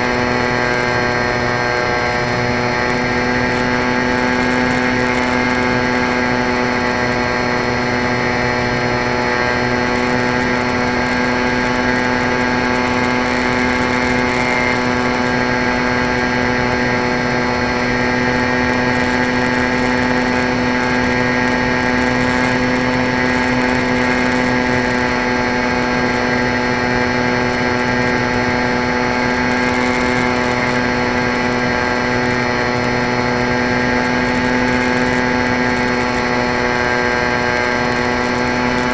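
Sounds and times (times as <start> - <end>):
electric motor whine: 0.0 - 38.9.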